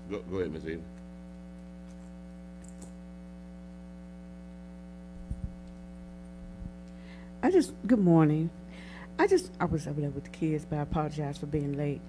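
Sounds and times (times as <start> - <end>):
electrical mains hum: 0.0 - 12.0
soft low thumps: 5.1 - 6.8.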